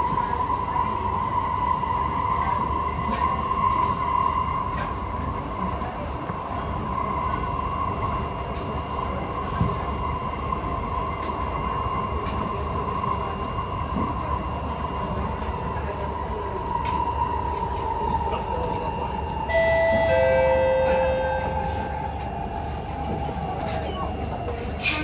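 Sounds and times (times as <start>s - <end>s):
train wheels rumbling on rail: 0.0s - 25.0s
steady whine: 7.1s - 24.9s.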